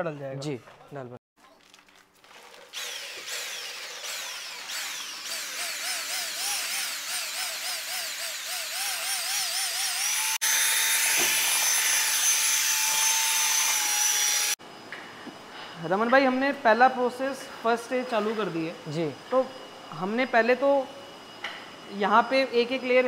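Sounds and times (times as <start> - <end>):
electric drill mixer motor whine: 2.7 - 14.6.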